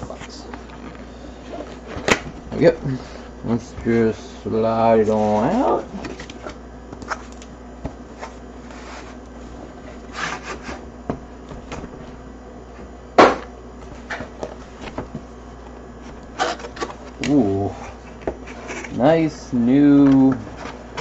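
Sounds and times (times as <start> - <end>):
cardboard rubbing and scraping: 5.0 - 7.3, 8.1 - 10.8.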